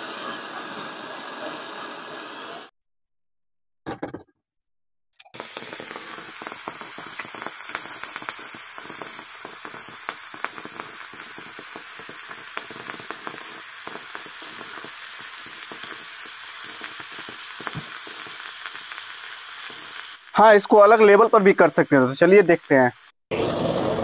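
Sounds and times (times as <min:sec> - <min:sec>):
crackling pops: 0:05.4 - 0:23.2
sizzling hiss: 0:05.4 - 0:24.0.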